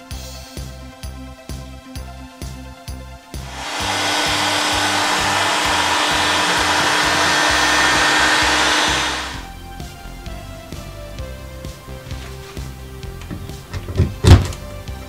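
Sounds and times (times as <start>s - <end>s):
heat gun blowing air: 3.4s - 9.5s.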